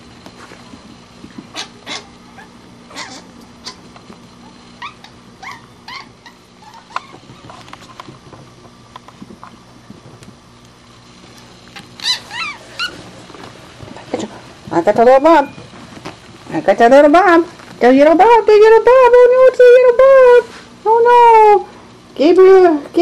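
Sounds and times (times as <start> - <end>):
young mink squeaking: 1.6 - 3.8, 4.8 - 7.5, 11.8 - 13.0.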